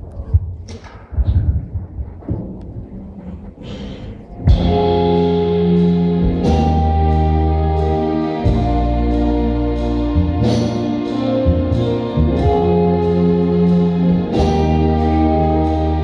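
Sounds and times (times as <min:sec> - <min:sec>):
orchestra playing chords: 0:04.3 - 0:16.0.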